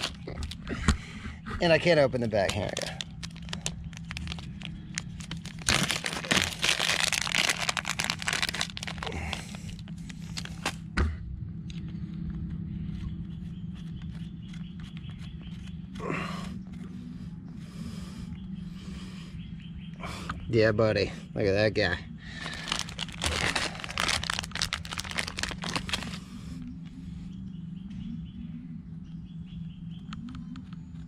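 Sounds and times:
plastic packaging tearing and crinkling: 0.0s - 0.6s, 2.2s - 10.8s, 22.4s - 26.2s.

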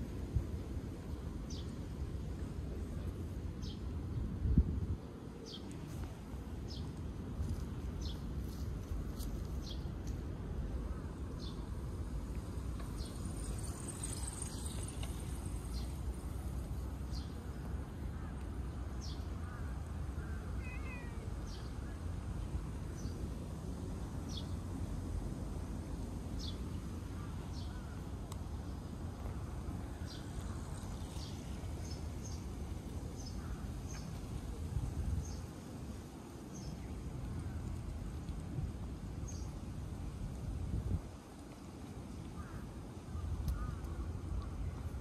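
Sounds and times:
wind rumble on microphone: 0.0s - 45.0s
cat meowing: 20.6s - 21.2s.

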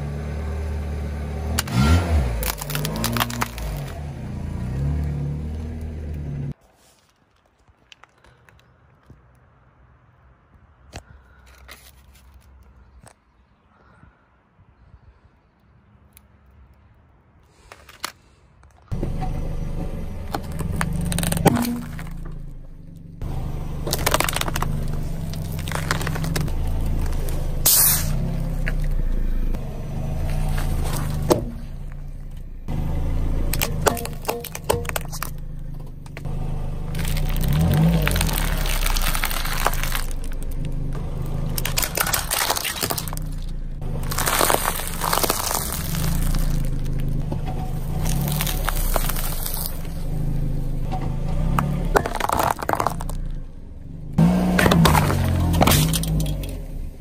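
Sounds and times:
car tyre crushing objects: 1.4s - 9.6s, 17.5s - 57.0s
glass jar cracking: 2.4s - 4.0s, 20.3s - 22.5s, 23.9s - 27.2s, 33.5s - 35.5s, 36.9s - 49.9s, 51.9s - 53.3s, 54.6s - 56.6s.

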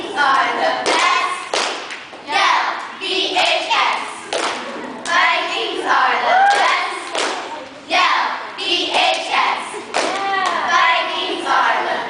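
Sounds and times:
sharp claps: 0.4s - 2.2s, 4.3s - 5.2s, 6.5s - 7.7s, 9.9s - 10.6s
girls shouting a cheer: 5.2s - 7.2s, 10.0s - 12.0s.

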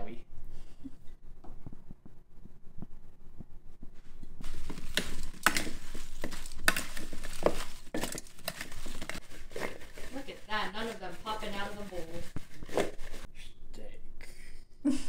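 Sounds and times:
sprouts rustling and knocking: 4.4s - 13.3s.

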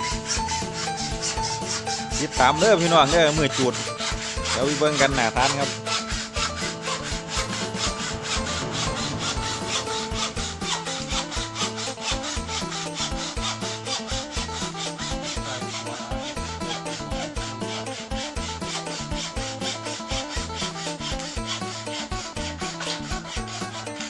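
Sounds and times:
hacksaw cutting bamboo: 0.0s - 24.0s.

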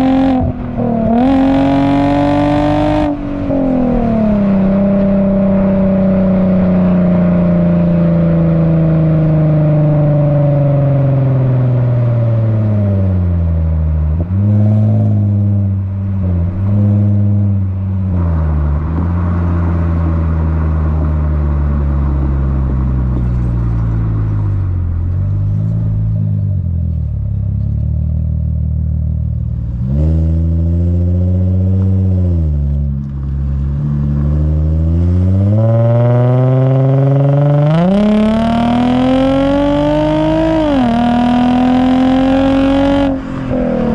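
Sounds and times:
car exhaust engine note: 0.0s - 43.9s.

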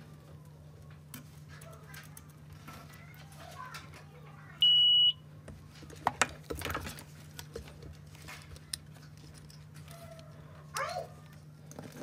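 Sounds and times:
multimeter continuity beep: 4.6s - 5.2s.

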